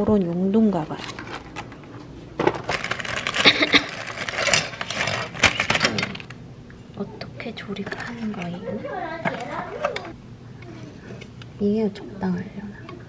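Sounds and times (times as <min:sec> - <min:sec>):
plastic packaging crinkling: 0:00.8 - 0:06.4
plastic tools clattering on countertop: 0:02.4 - 0:06.3, 0:09.2 - 0:10.1.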